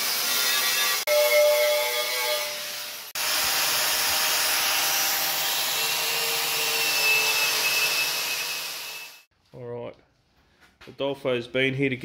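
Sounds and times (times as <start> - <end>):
angle grinder with wire wheel: 0.0 - 9.3.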